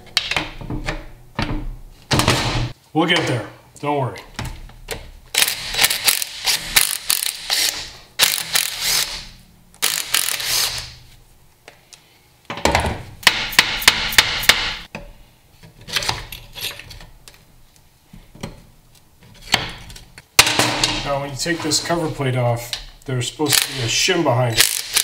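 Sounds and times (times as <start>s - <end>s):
impact driver hammering: 13.2s - 14.8s.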